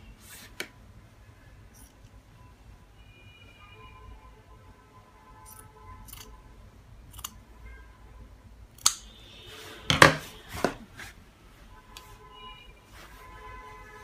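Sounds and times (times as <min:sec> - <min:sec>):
scissors cutting cloth: 0:05.4 - 0:06.3, 0:07.1 - 0:07.4.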